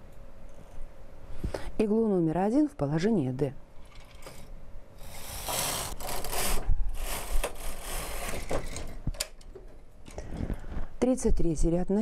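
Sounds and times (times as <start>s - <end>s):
knitting machine carriage rasping slide: 5.0s - 8.9s.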